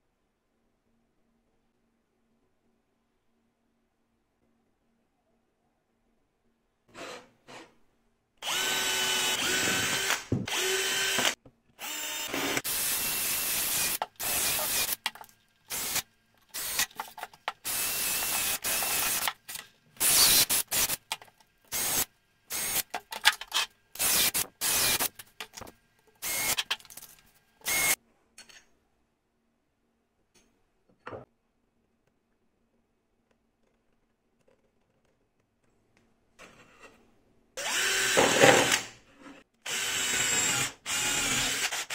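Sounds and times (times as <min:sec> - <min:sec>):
cordless drill whining in bursts: 0:08.4 - 0:15.0, 0:15.7 - 0:16.0, 0:17.6 - 0:19.3, 0:21.7 - 0:22.8, 0:24.0 - 0:25.1, 0:26.2 - 0:26.7, 0:27.6 - 0:28.0, 0:37.6 - 0:38.8, 0:39.6 - 0:41.9.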